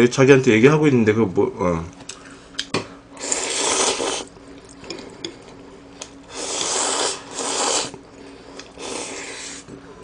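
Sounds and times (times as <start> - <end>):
person slurping noodles: 3.2 - 4.3, 6.3 - 8.0, 8.7 - 9.7.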